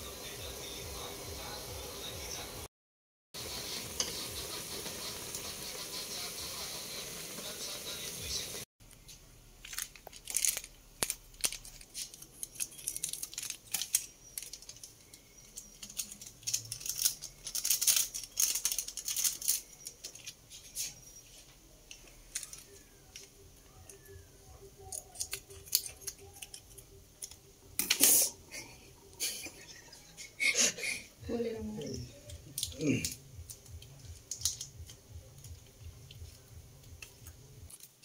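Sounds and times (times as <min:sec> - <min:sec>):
pan of water hissing: 0:03.4 - 0:08.6
plastic sachets crackling: 0:09.5 - 0:21.2, 0:21.9 - 0:28.7, 0:31.8 - 0:38.0
powder shaken out: 0:09.7 - 0:20.3.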